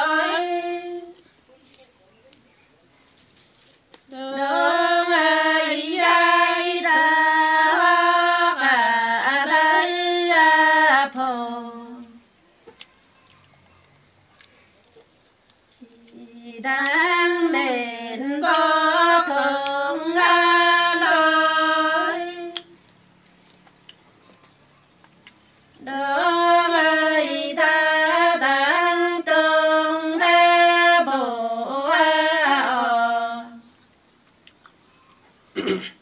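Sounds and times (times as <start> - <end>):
woman singing unaccompanied: 0.0 - 1.3, 4.1 - 12.3, 15.8 - 22.8, 25.8 - 33.8.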